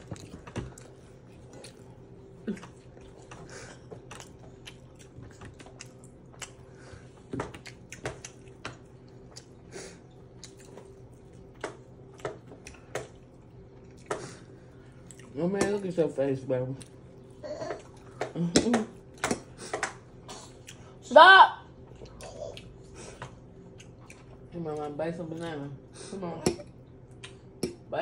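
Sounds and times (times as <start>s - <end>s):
chewing: 0.0s - 15.9s, 16.7s - 18.3s, 21.8s - 25.6s
low steady hum: 0.0s - 28.0s.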